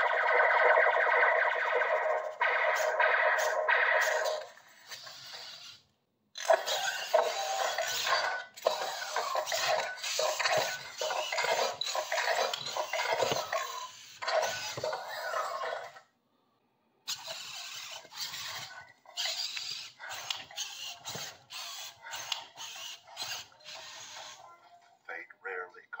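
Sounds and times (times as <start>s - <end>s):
robot toy clanking: 6.4s - 16.0s, 17.1s - 24.5s.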